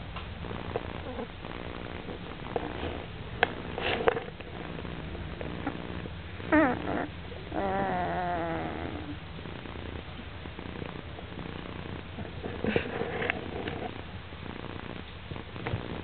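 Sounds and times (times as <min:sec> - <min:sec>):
puppies snoring: 0:00.0 - 0:16.0
puppy whimpering: 0:06.4 - 0:09.2.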